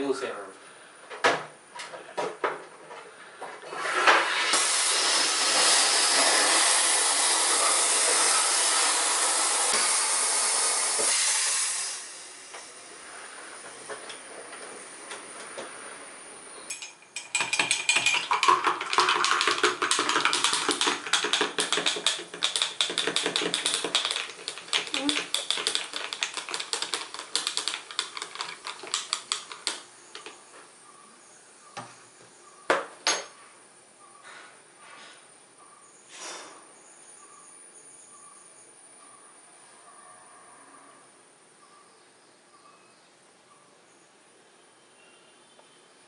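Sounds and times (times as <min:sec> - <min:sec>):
gas hissing into bottle: 0:03.8 - 0:13.8, 0:18.2 - 0:30.3.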